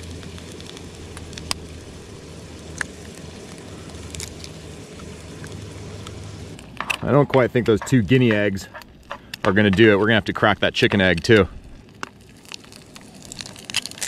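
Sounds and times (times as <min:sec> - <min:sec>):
gas stove burner running: 0:00.0 - 0:10.4
eggshell cracking clicks: 0:11.0 - 0:14.0.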